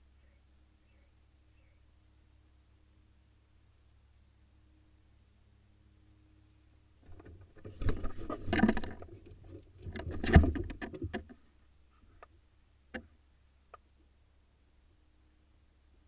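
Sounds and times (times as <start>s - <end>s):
claws scrabbling on wood: 7.1s - 11.4s.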